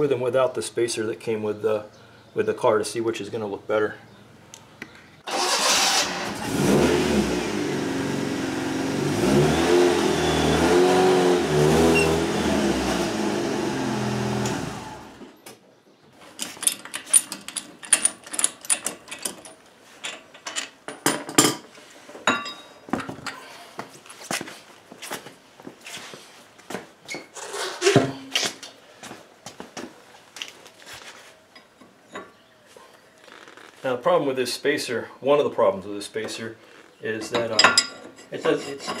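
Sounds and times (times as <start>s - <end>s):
car engine revving: 5.3s - 15.3s
metallic clicks and knocks: 16.4s - 21.6s.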